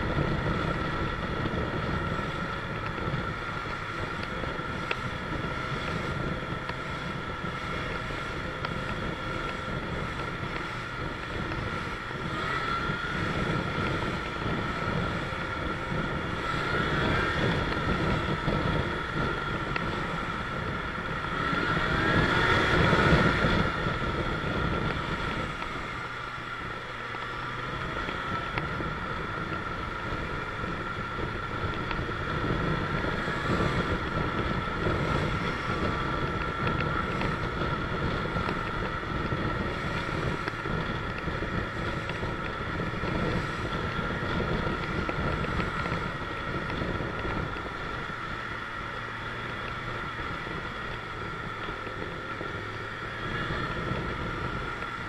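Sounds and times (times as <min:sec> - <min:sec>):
motorcycle engine running: 0:00.0 - 0:55.0
wind noise on microphone: 0:00.0 - 0:55.0.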